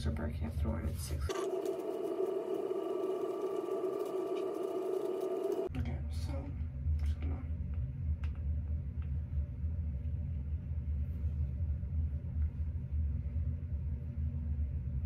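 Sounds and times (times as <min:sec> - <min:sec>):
low rumble with faint hum: 0:05.6 - 0:15.0.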